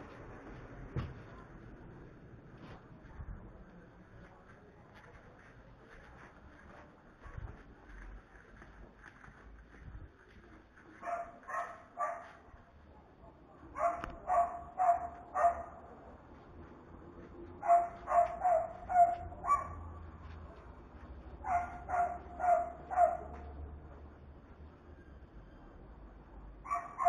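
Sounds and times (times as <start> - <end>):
dog barking: 11.0 - 12.4, 13.8 - 15.9, 17.6 - 20.0, 21.4 - 23.4, 26.6 - 27.0.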